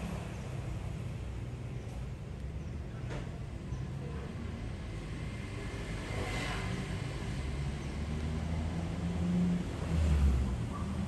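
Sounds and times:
vehicle engine: 0.0s - 2.2s
rumble of motor traffic: 0.0s - 11.0s.

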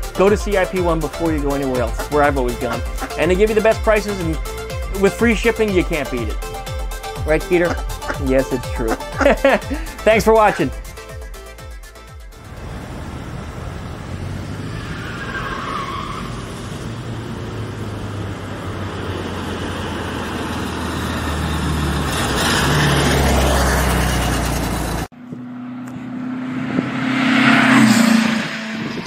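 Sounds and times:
steady engine note: 0.0s - 14.6s.

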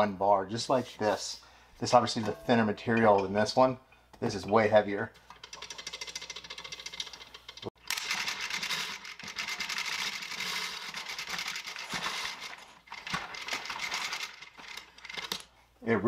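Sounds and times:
hose reel ratchet clicking: 5.2s - 15.4s.

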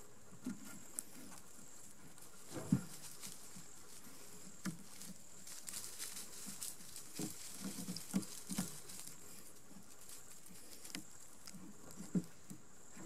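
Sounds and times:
cord rustling: 2.1s - 12.5s.

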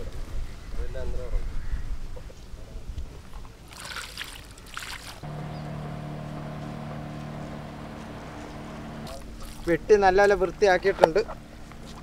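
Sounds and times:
boat engine humming: 5.2s - 12.0s.

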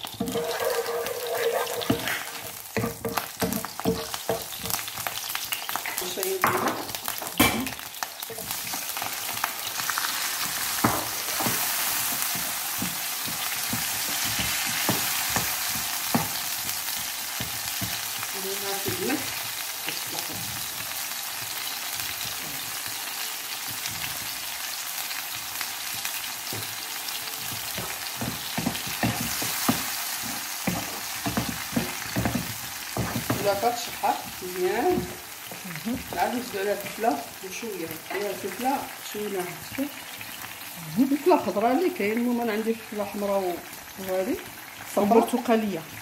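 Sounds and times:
food sizzling in hot oil: 0.0s - 46.0s
wooden spoon knocking and scraping: 0.2s - 4.8s, 27.4s - 37.0s.

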